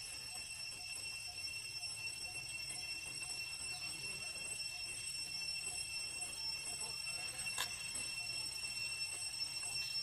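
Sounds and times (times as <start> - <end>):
high-pitched insect drone: 0.0 - 10.0.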